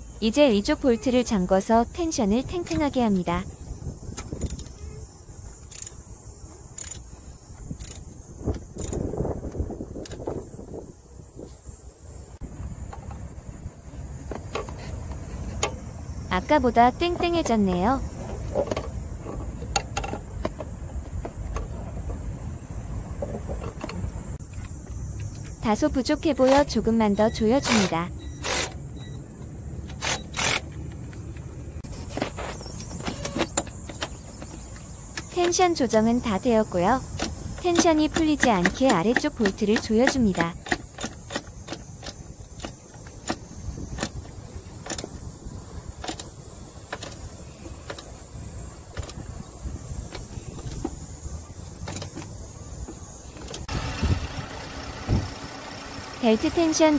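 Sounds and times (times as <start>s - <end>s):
socket ratchet clicking: 4.2s - 4.8s, 5.6s - 6.0s, 6.8s - 7.1s, 7.8s - 9.1s, 37.1s - 44.2s.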